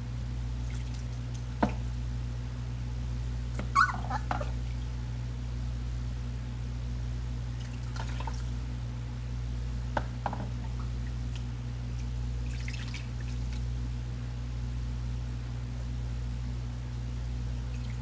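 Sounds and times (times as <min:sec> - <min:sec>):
steady low hum: 0:00.0 - 0:18.0
water pouring and splashing: 0:07.6 - 0:08.5, 0:12.4 - 0:13.6.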